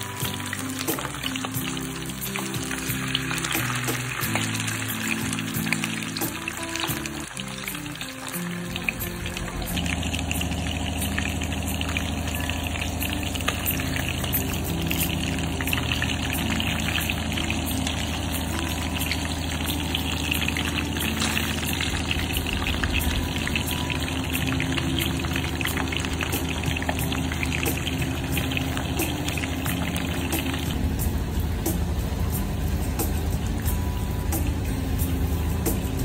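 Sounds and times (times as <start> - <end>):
fish sizzling in hot oil: 0.0 - 36.0
steady low hum: 9.0 - 36.0.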